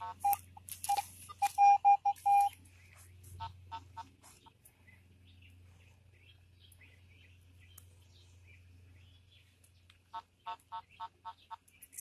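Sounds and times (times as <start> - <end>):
phone steady high tone: 0.0 - 2.6
metal detector short beeps: 0.2 - 2.6.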